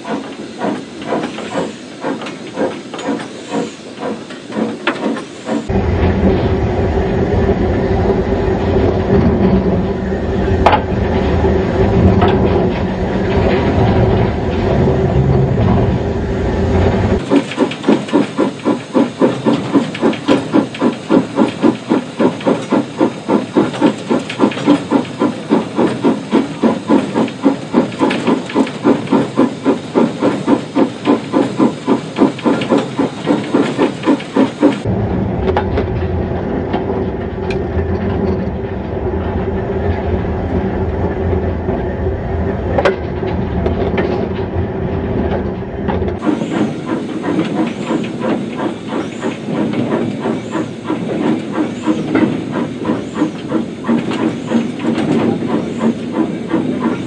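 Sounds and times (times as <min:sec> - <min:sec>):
steam hissing: 0:00.0 - 0:05.8, 0:16.0 - 0:34.9, 0:46.2 - 0:57.0
heavy locomotive rumble: 0:00.0 - 0:57.0
steam locomotive exhaust chuffs: 0:00.0 - 0:57.0.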